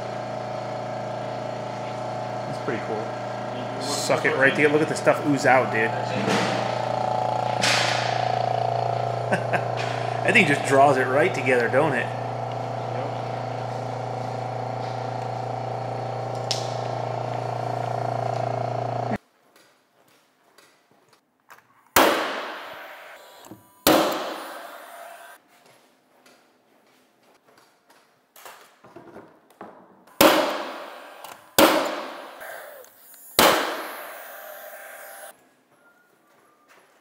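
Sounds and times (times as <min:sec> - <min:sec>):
vacuum pump hum: 0:00.0 - 0:19.2, 0:22.0 - 0:25.4, 0:30.2 - 0:35.3
nailer firing sharp shots: 0:07.6 - 0:08.3, 0:22.0 - 0:23.0, 0:23.8 - 0:24.6, 0:30.2 - 0:32.6, 0:33.4 - 0:34.3.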